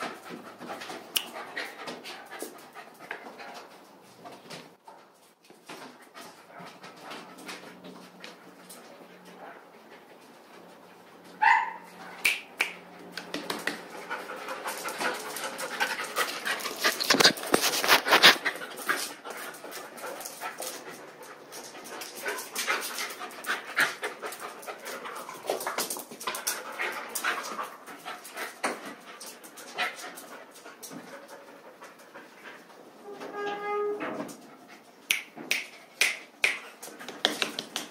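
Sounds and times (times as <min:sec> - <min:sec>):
dogs panting: 0:00.0 - 0:04.0, 0:13.0 - 0:33.0.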